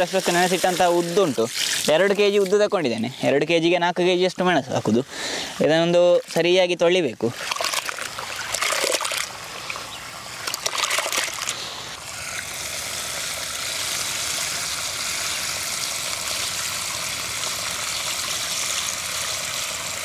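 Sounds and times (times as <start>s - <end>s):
water pouring onto ground: 0.0s - 3.1s, 5.5s - 20.0s
hands splashing in water: 7.3s - 9.3s, 10.4s - 11.6s.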